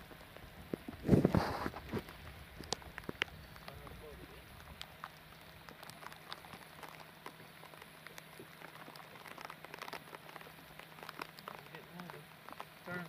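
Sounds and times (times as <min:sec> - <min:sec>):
low steady hum: 0:00.0 - 0:13.0
water drops pattering: 0:02.0 - 0:13.0.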